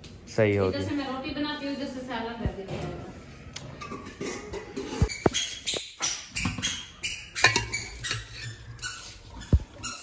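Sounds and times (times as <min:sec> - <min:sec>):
metal spoon scraping pots: 0:03.7 - 0:10.0.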